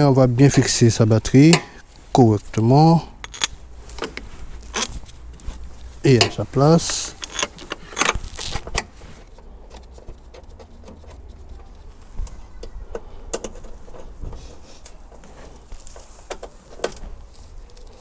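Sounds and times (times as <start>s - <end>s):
tools clicking and knocking: 3.2s - 5.2s, 6.1s - 11.2s, 12.6s - 15.2s, 15.9s - 17.0s.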